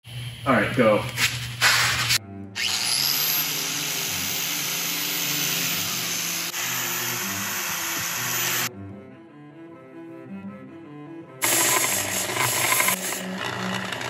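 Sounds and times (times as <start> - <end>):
angle grinder grinding steel: 1.6 - 8.7, 11.4 - 14.0.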